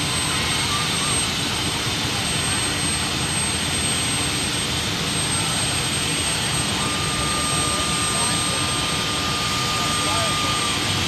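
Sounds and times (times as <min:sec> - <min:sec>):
steady whine: 0:00.0 - 0:11.0.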